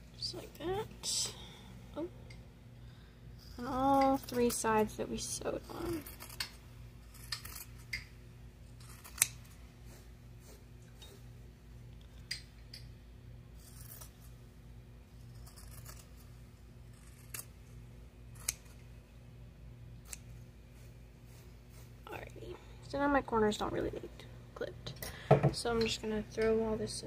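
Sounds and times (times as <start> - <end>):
scissors snipping fabric: 5.4 - 8.0, 8.8 - 9.6, 13.6 - 14.3, 18.3 - 18.8, 20.0 - 20.3.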